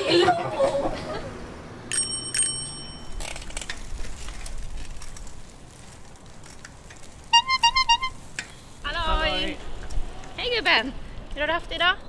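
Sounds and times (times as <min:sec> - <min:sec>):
bicycle bell ringing: 0:01.9 - 0:03.5.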